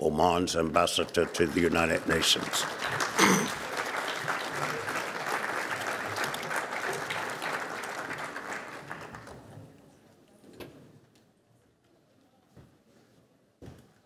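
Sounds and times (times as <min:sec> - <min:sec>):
audience applauding: 0:00.6 - 0:09.6.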